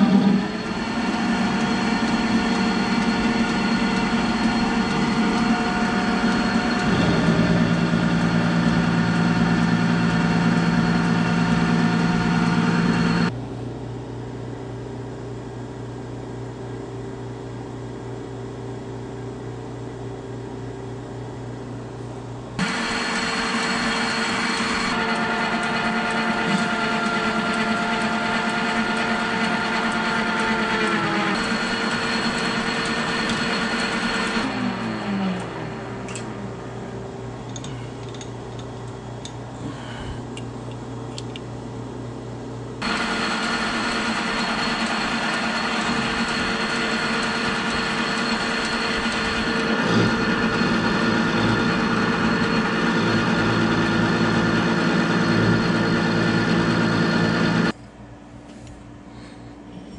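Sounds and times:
metal lathe whining: 0.0s - 13.3s, 22.6s - 36.7s, 42.8s - 57.7s
low hum: 0.0s - 13.6s.

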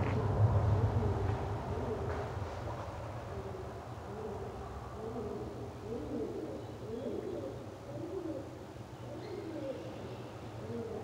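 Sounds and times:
pigeons cooing: 3.3s - 10.0s, 10.6s - 11.0s.

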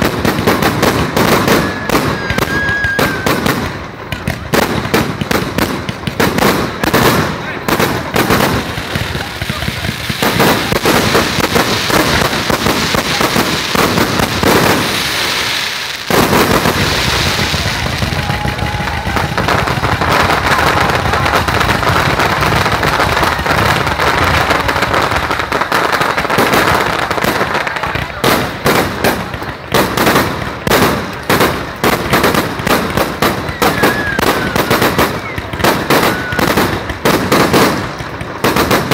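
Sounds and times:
fireworks crackling: 0.0s - 38.9s
sharp fireworks bangs: 0.0s - 38.9s.

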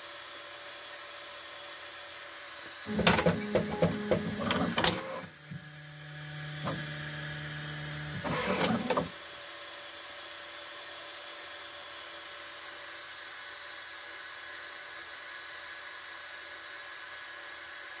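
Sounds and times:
steady whir: 2.7s - 9.4s
printer motors humming: 2.8s - 9.2s
printer clicks: 2.9s - 5.3s, 8.2s - 9.1s.

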